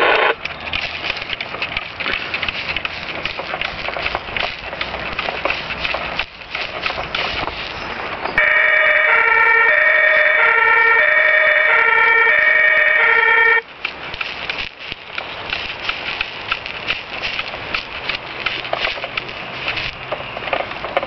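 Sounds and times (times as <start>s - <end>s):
rustling crackling noise: 0.0s - 21.0s
toy electronic two-tone siren: 8.4s - 13.7s.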